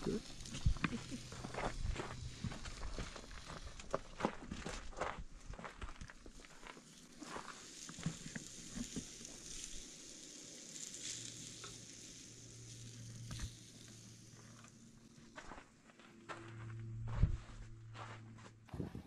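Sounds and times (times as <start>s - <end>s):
meat sizzling on a grill: 0.0s - 3.9s, 6.3s - 14.9s
low steady hum: 11.3s - 19.0s.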